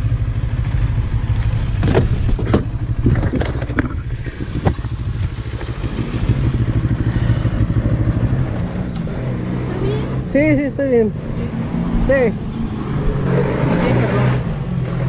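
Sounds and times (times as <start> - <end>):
motorcycle engine idling: 0.0 - 9.1
motorcycle scraping tipping over: 0.7 - 5.0
car striking motorcycle knocks: 1.8 - 4.0.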